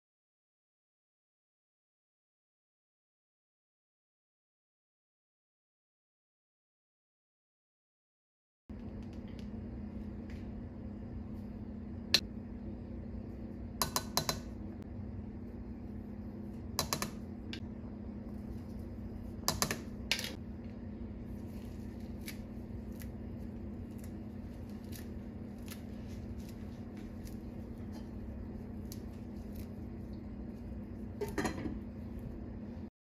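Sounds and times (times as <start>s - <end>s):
steady low hum: 8.7s - 32.9s.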